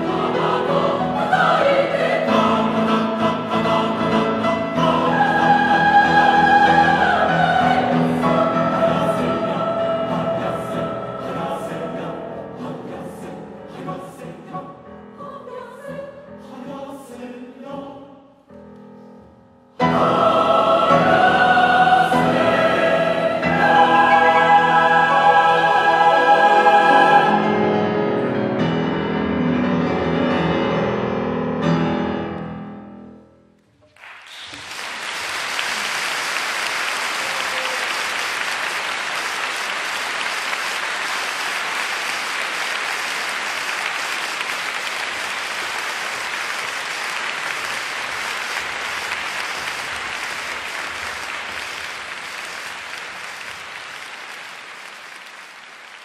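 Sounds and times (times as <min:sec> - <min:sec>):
choir singing with piano: 0:00.0 - 0:19.2, 0:19.8 - 0:32.5
audience applause: 0:33.9 - 0:56.0.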